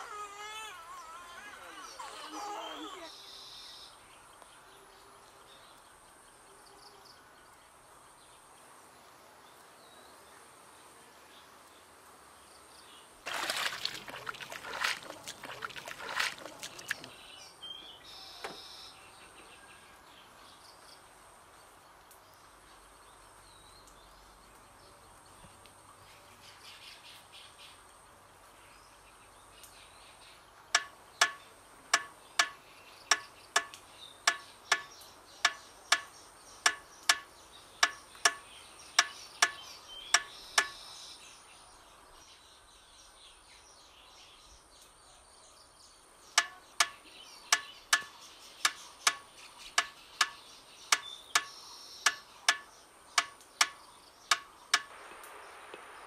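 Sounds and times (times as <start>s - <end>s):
faint bird calls: 0.0s - 3.9s
hoe chopping wet mud: 13.3s - 17.2s.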